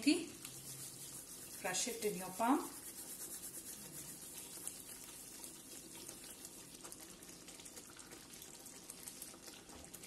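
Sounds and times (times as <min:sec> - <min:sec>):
thick sauce bubbling and popping: 0:00.3 - 0:01.9, 0:03.2 - 0:10.0.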